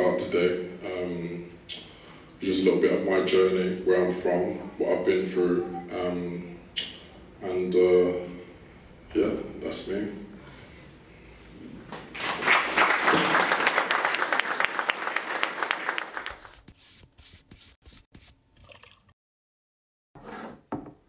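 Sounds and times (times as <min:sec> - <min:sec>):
audience clapping: 0:11.9 - 0:16.5.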